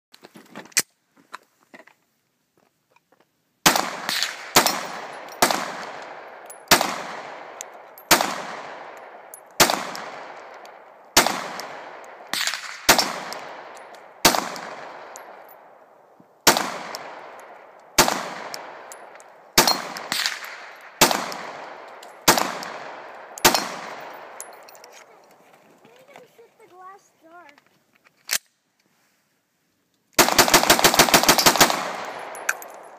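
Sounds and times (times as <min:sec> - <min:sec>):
pistol shots echoing: 0:03.6 - 0:15.7, 0:16.4 - 0:24.8, 0:30.2 - 0:32.9.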